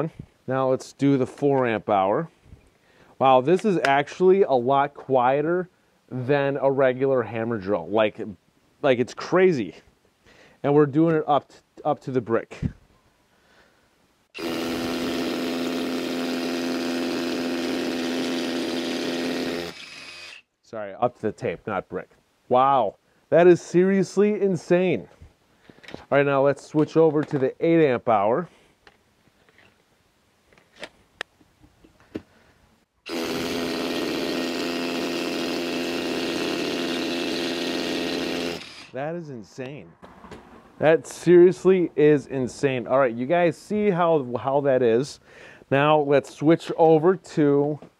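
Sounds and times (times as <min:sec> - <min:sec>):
rotary hammer drilling concrete: 0:14.4 - 0:20.5, 0:33.1 - 0:39.0.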